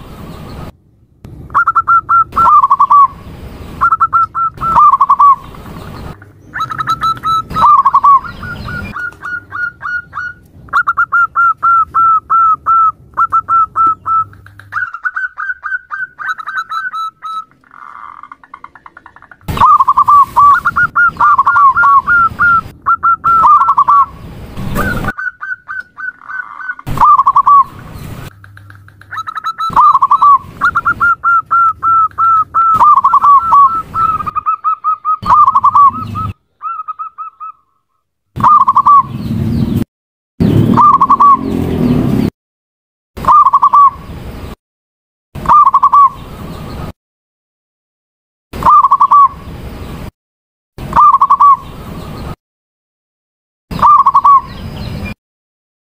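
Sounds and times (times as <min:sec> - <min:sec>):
dove cooing: 0:01.6 - 0:03.1, 0:03.8 - 0:05.4, 0:06.6 - 0:24.1, 0:24.8 - 0:27.7, 0:28.3 - 0:37.6, 0:40.7 - 0:41.5, 0:53.8 - 0:54.4.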